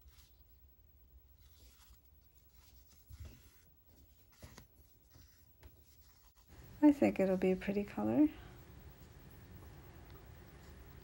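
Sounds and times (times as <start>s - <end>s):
thread drawn through fabric: 1.3s - 6.6s.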